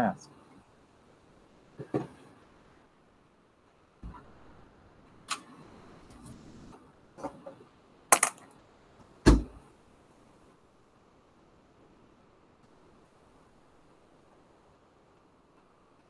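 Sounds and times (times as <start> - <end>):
sharp clicks and knocks: 7.2 - 8.4
heavy thump: 9.2 - 9.6.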